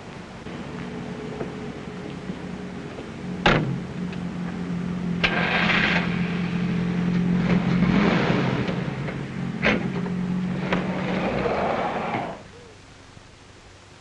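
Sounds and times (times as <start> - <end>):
car engine running: 0.4 - 12.5.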